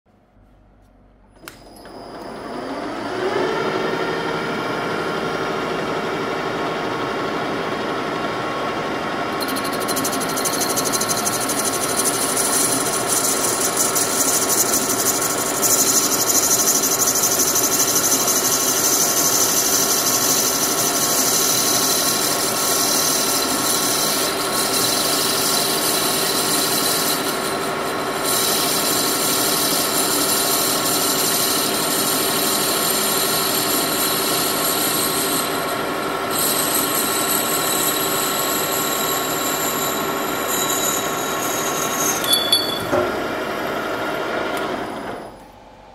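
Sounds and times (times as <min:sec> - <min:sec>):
metal lathe whining: 0:01.4 - 0:45.4
high squeal of cutting tool: 0:09.4 - 0:43.0.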